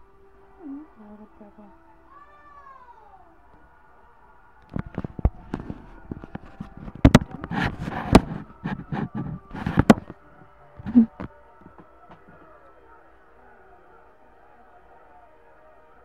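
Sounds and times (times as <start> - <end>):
rubbing and rustling: 4.6 - 12.6
microphone handling taps and knocks: 4.7 - 10.2.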